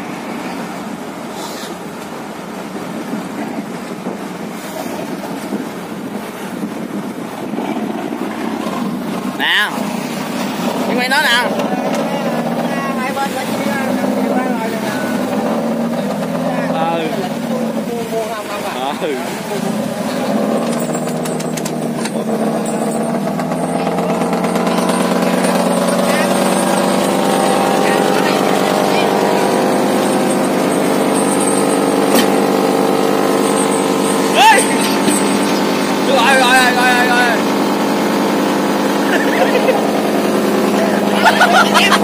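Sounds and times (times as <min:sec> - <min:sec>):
boat diesel engine running: 0:00.0 - 0:42.0
sea washing: 0:00.0 - 0:42.0
wind buffeting microphone: 0:01.9 - 0:16.3.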